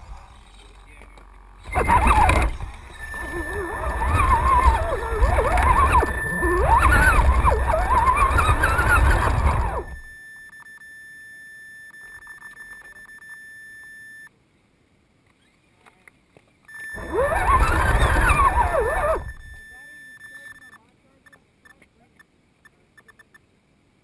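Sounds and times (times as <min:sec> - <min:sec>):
heavy chassis rumble: 0:00.0 - 0:10.1, 0:17.0 - 0:19.6
high electronic whine: 0:00.0 - 0:10.1, 0:16.8 - 0:19.8
electric motor whine: 0:01.4 - 0:10.1, 0:16.9 - 0:19.6.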